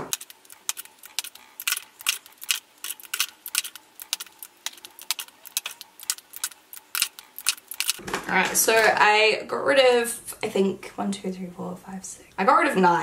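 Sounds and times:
plastic tubes clicking: 0.0 - 8.0.

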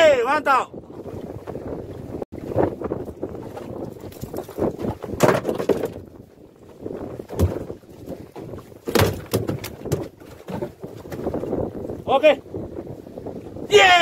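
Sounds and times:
wind buffeting microphone: 0.0 - 14.0
fishing gear rustling and knocking: 2.9 - 11.6.

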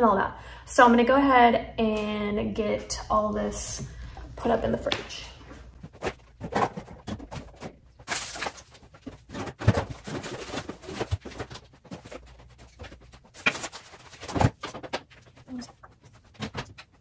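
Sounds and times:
groceries knocking and rustling: 5.7 - 17.0.

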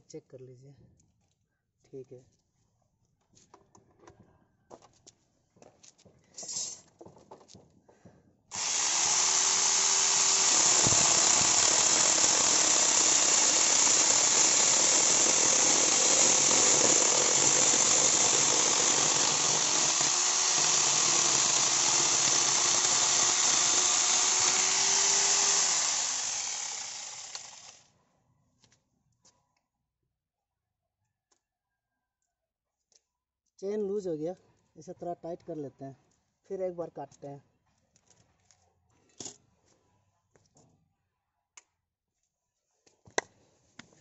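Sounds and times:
angle grinder sawing branch: 8.5 - 27.9.

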